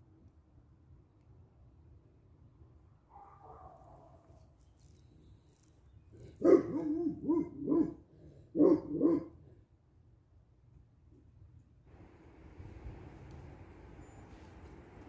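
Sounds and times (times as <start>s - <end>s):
dog barking: 3.1s - 4.3s, 6.4s - 9.4s.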